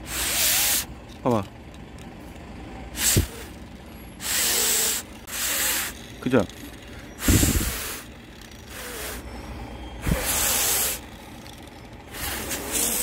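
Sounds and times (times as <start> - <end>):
man blowing puffs of air: 0.0 - 0.9, 3.0 - 3.5, 4.2 - 5.9, 7.2 - 8.1, 8.7 - 9.2, 10.0 - 11.0, 12.1 - 13.0.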